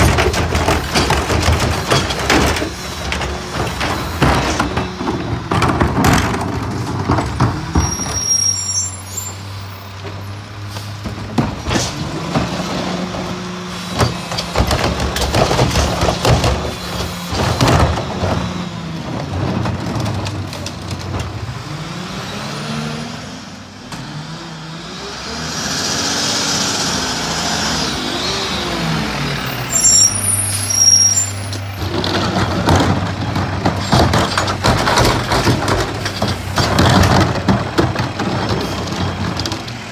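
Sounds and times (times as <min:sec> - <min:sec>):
carts banging against hopper: 0:00.0 - 0:08.2, 0:11.0 - 0:21.5, 0:31.5 - 0:39.9
diesel truck engine: 0:00.0 - 0:39.9.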